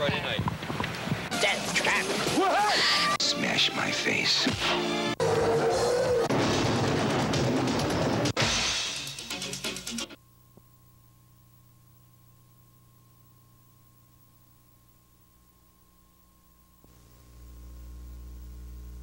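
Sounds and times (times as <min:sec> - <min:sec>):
music with drums: 0:06.6 - 0:10.2
faint electrical hum: 0:10.2 - 0:19.0.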